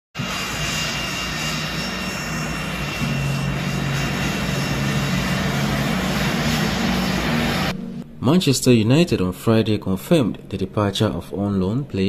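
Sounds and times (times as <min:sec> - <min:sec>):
jet engines whining while taxiing: 0:00.2 - 0:08.0.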